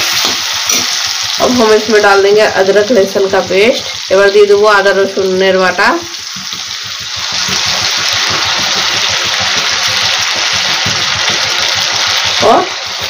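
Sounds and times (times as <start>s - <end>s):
paste sizzling in hot oil: 0.0s - 13.0s.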